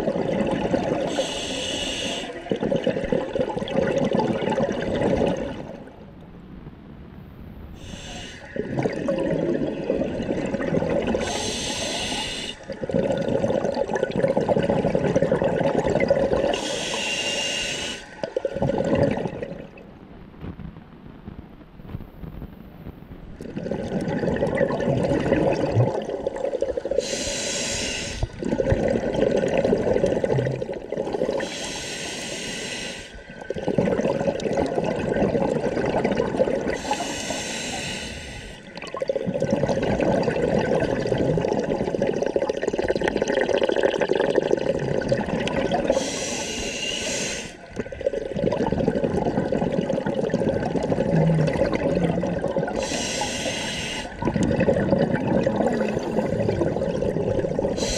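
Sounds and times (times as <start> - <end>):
bubbling exhaled air: 0.0 - 5.9, 7.8 - 19.8, 23.4 - 57.9
hissing regulator inhalations: 1.1 - 2.4, 7.8 - 8.6, 11.2 - 12.8, 16.5 - 18.3, 27.0 - 28.4, 31.4 - 33.2, 36.8 - 38.8, 45.9 - 47.7, 52.7 - 54.2.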